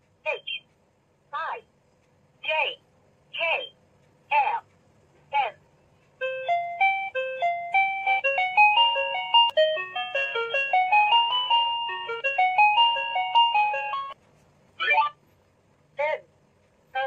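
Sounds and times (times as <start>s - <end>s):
electronic toy melody: 6.2s - 14.2s.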